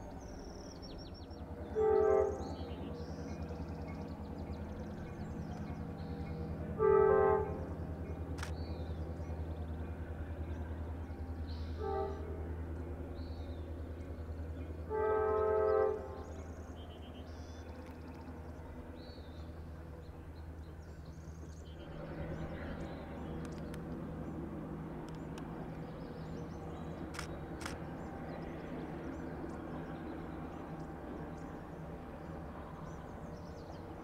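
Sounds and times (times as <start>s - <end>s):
locomotive engine drone: 0.0s - 34.0s
train air horn blasts: 1.7s - 2.6s, 6.8s - 7.7s, 11.7s - 12.4s, 14.9s - 16.4s.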